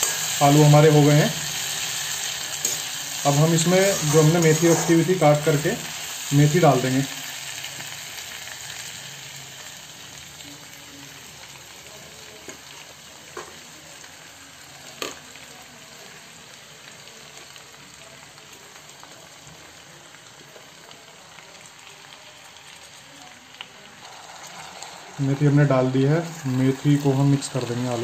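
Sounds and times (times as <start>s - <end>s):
vegetables sizzling in a pan: 0.0s - 28.0s.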